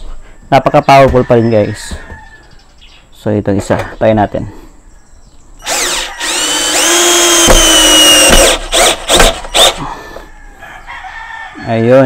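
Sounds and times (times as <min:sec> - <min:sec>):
cordless drill driving screw: 0:05.6 - 0:09.8.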